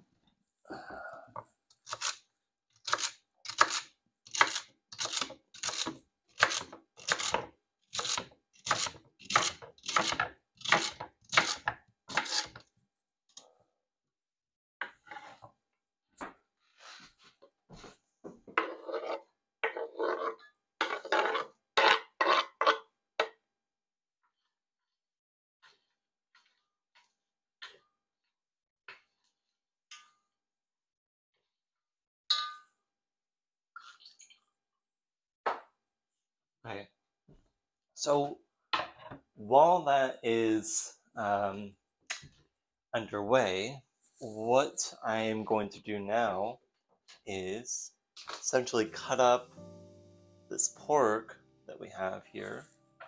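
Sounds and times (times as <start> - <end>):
knife chopping on cutting board: 2.8 - 12.5.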